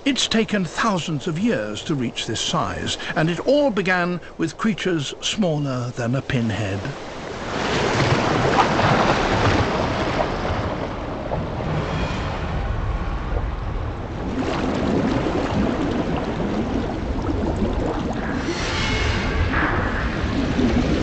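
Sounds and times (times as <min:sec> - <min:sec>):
underwater churning and bubbling: 0:00.0 - 0:21.0
steady low rumble: 0:09.8 - 0:21.0.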